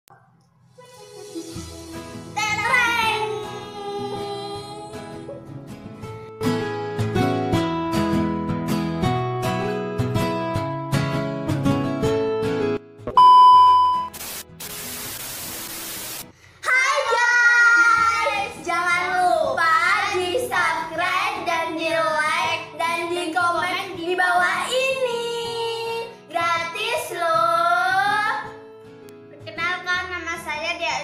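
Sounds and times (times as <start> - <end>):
high test-tone beep: 13.1 - 14.2
static hiss: 14.1 - 16.3
girls singing loudly: 16.6 - 28.4.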